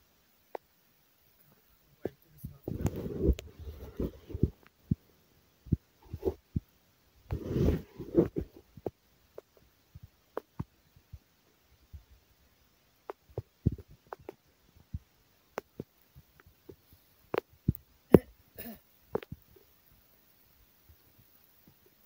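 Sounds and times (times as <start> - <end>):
soft thumps and clicks: 2.0 - 5.0, 13.1 - 18.3.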